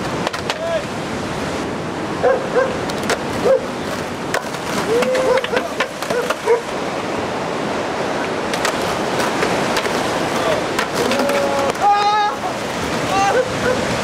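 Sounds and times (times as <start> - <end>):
skateboard clacks: 0.0 - 0.9, 2.6 - 6.8, 8.2 - 13.5
skateboard wheels rolling on pavement: 0.0 - 14.0
faint voice calls: 4.8 - 5.8, 11.0 - 13.6.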